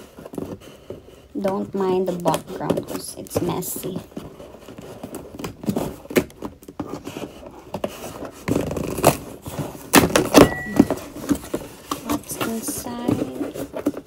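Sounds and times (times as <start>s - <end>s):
scissors scraping and snipping tape: 4.7s - 10.2s.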